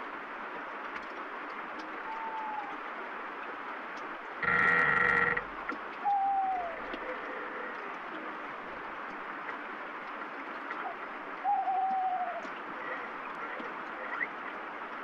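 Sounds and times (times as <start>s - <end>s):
steady rain: 0.0s - 15.0s
wooden branch creaking: 4.4s - 5.8s
owl hooting: 4.4s - 6.8s, 11.5s - 12.4s.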